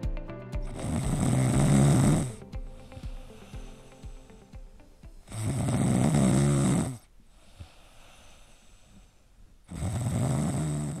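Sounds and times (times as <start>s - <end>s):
person snoring: 0.6s - 4.5s, 5.2s - 11.0s.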